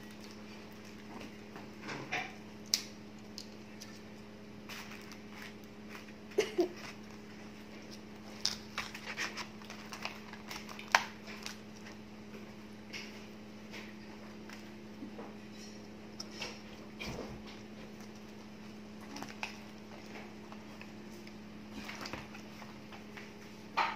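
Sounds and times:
steady low hum: 0:00.0 - 0:23.9
paper wrappers rustling: 0:03.5 - 0:12.1.

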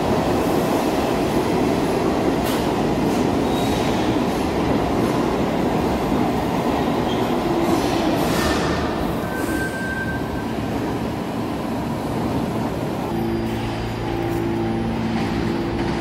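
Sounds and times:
subway train rumbling: 0:00.0 - 0:16.0
high wheel squeals: 0:09.2 - 0:10.6.

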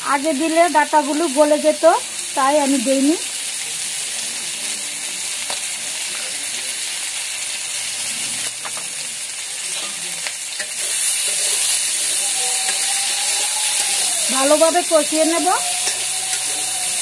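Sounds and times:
stalks sizzling in oil: 0:00.0 - 0:17.0
spatula stirring pan: 0:09.6 - 0:17.0.

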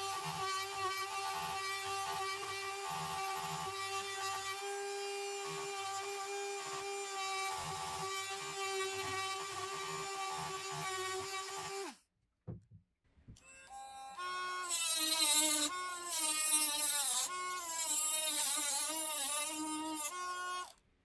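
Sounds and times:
rotary tool sanding steel: 0:14.2 - 0:20.7.

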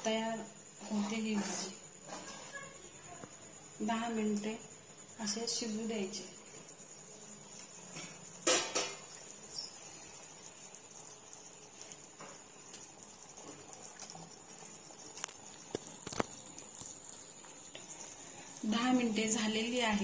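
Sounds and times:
faint steady high tone: 0:00.0 - 0:15.6
thick batter simmering in pot: 0:00.1 - 0:20.0.

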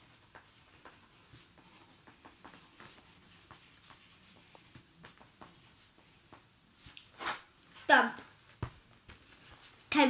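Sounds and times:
pencil scratching on paper: 0:00.0 - 0:06.2.

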